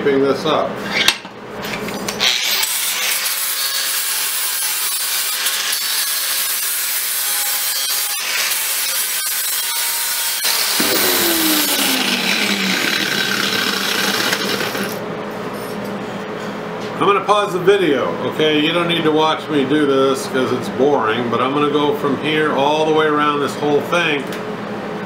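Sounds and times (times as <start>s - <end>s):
angle grinder grinding steel: 0.8s - 15.0s.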